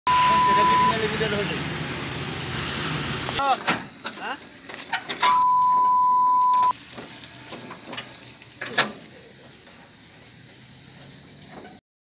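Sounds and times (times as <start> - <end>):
electronic beep tone: 0.1 - 1.1, 5.3 - 6.7.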